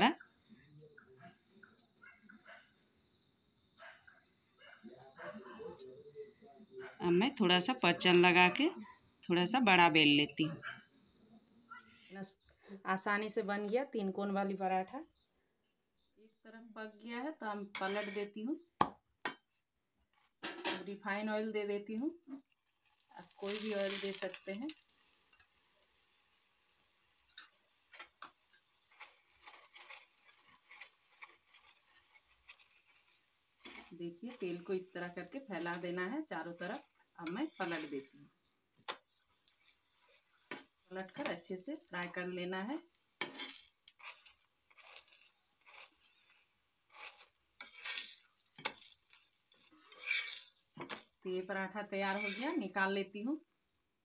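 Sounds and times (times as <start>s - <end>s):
oil sizzling on a hot griddle: 17.4s - 18.5s, 20.1s - 53.9s
metal spatula ticks and pops: 21.9s - 53.0s.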